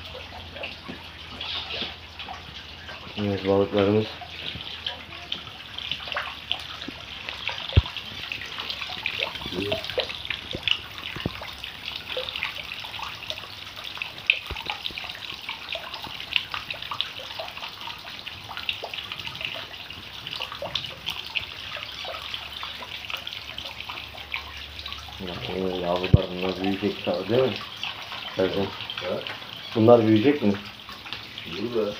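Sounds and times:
water splashing into a pond: 0:00.0 - 0:31.9.

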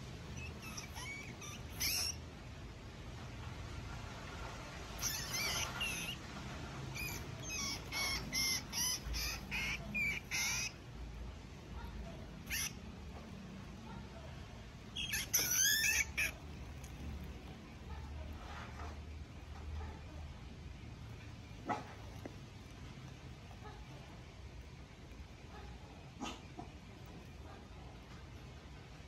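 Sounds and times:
rodent squealing: 0:00.2 - 0:02.3, 0:04.9 - 0:06.3, 0:06.9 - 0:11.0, 0:11.8 - 0:14.0, 0:14.8 - 0:19.0.

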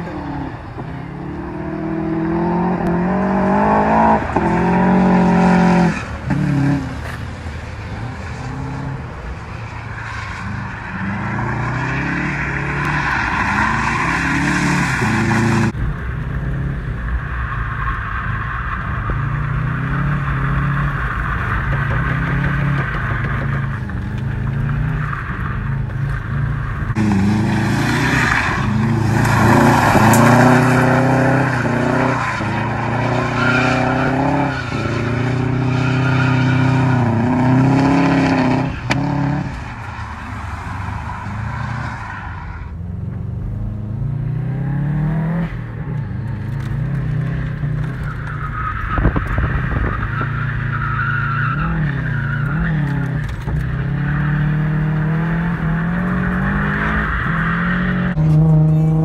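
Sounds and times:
car engine revving: 0:00.0 - 0:59.0
tires squealing: 0:00.0 - 0:59.0.

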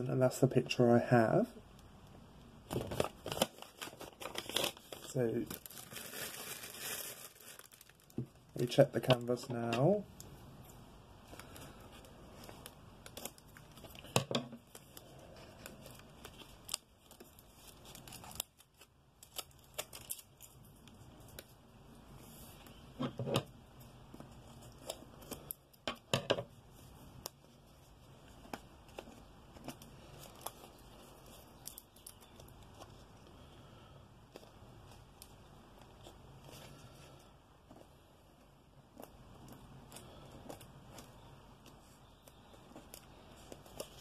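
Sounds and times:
plastic packaging crinkling: 0:02.7 - 0:09.7, 0:11.2 - 0:21.6, 0:26.7 - 0:33.3.

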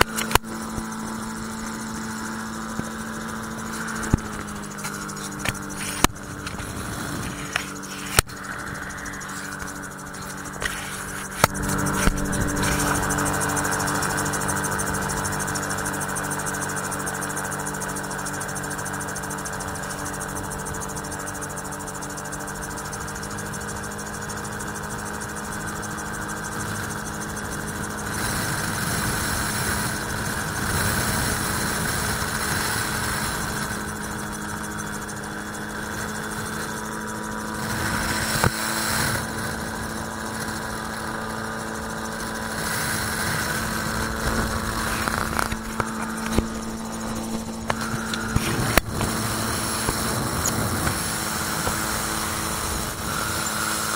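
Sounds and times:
aircraft engine droning: 0:00.0 - 0:53.9
wind rushing: 0:06.6 - 0:13.7.

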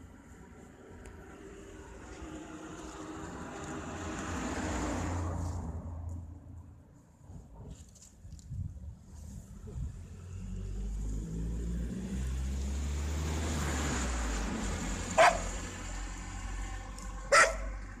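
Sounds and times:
car engine rumble passing: 0:00.1 - 0:07.6, 0:09.4 - 0:18.0
dog barking sharply: 0:15.2 - 0:15.5, 0:17.3 - 0:17.8.

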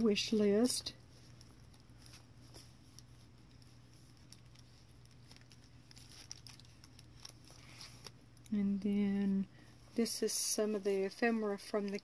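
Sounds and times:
faint low hum: 0:00.0 - 0:12.0
fingers handling paper pages: 0:00.3 - 0:08.5.

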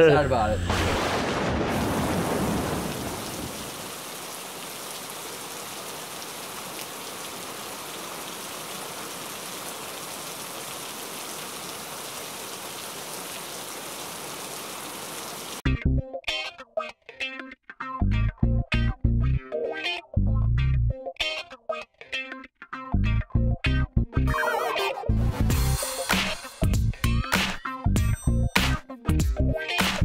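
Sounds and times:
rain on concrete: 0:00.8 - 0:15.6.

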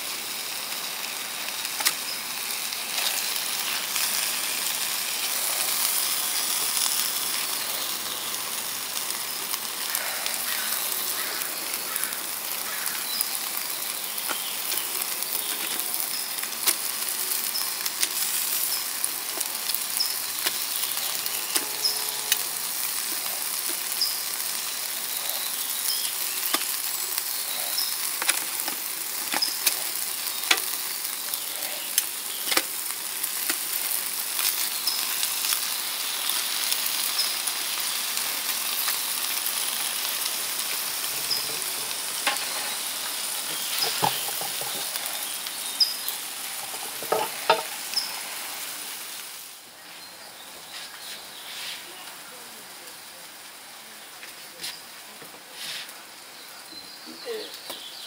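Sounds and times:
meat sizzling on a grill: 0:00.0 - 0:58.0
sharp pops and crackles: 0:01.7 - 0:02.1, 0:14.2 - 0:20.8, 0:26.4 - 0:26.9, 0:27.7 - 0:35.7, 0:39.9 - 0:48.1.

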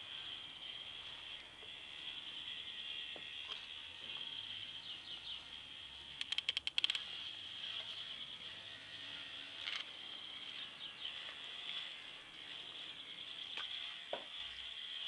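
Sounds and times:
toy motor whirring: 0:00.0 - 0:15.0
sharp clicks: 0:06.2 - 0:07.1.

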